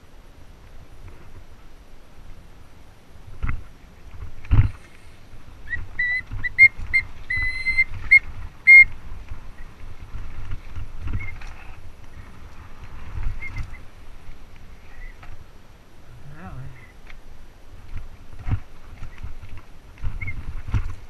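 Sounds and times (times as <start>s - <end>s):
rumble of tyres and wind: 0.0s - 21.0s
bike disc brakes squealing: 5.7s - 8.9s, 11.1s - 11.7s, 20.2s - 20.4s.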